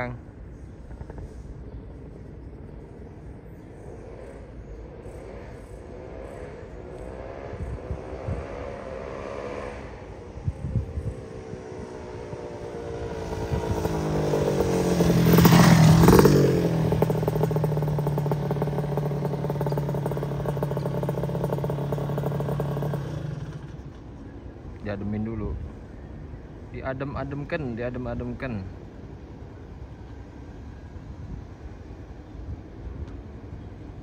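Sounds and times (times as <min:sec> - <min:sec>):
motorcycle engine revving past: 0:03.8 - 0:24.0
motorcycle engine idling: 0:12.5 - 0:24.5.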